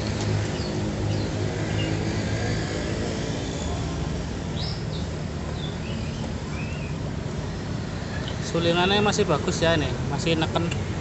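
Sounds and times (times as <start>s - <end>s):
bird chirps: 4.5s - 7.0s.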